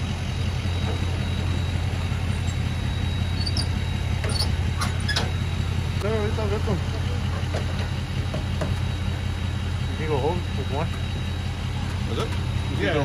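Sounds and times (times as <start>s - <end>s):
vehicle engine idling: 0.0s - 13.0s.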